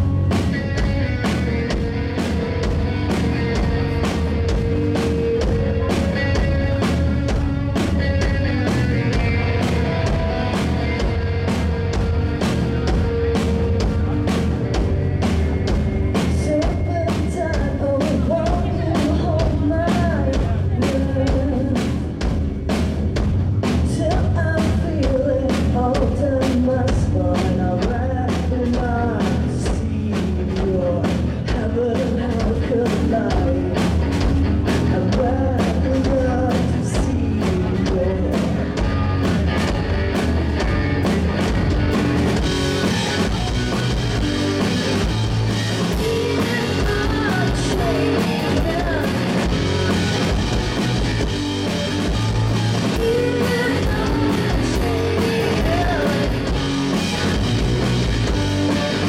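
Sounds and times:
bass guitar: 0:00.0 - 0:59.0
drum kit beat: 0:00.0 - 0:59.0
electric guitar: 0:00.0 - 0:59.0.

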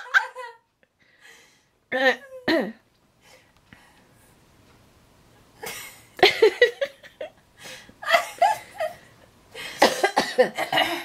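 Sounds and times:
woman laughing: 0:00.0 - 0:00.7, 0:05.6 - 0:07.3, 0:08.0 - 0:09.1.

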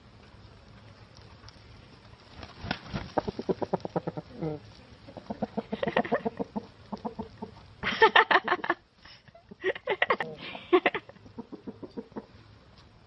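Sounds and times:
chickens clucking: 0:02.4 - 0:07.8, 0:09.4 - 0:12.5.

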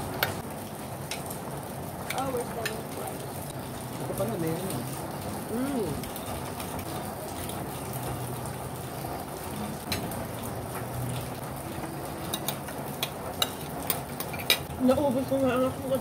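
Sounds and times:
cutlery clinking on plates: 0:12.3 - 0:14.7.

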